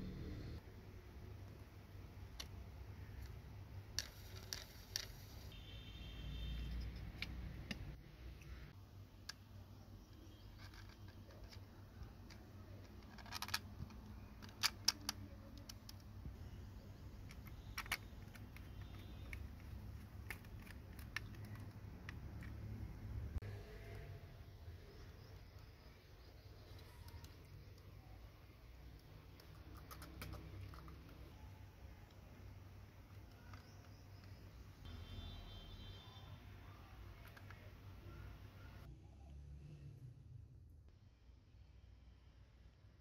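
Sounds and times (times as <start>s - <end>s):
plastic parts clicking together: 10.5s - 16.2s, 17.1s - 22.8s.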